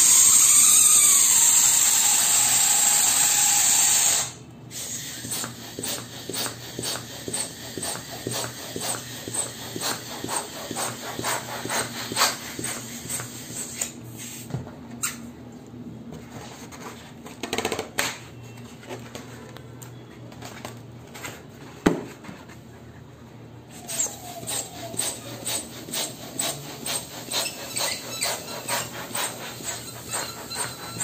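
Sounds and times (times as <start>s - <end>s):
hand balloon pump puffing: 0.0s - 15.2s, 23.7s - 31.0s
rubbing of balloon rubber: 5.3s - 13.9s, 23.7s - 31.0s.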